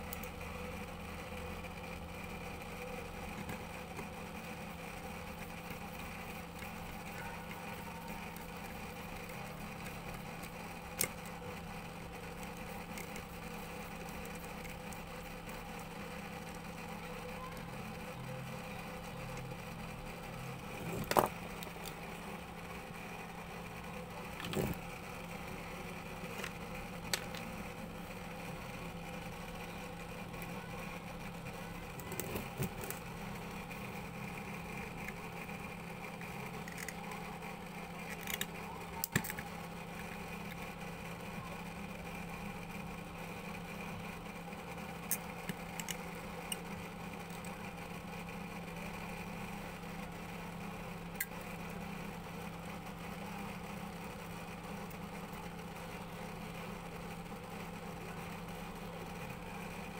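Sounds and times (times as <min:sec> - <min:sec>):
machine humming: 0:00.0 - 0:59.9.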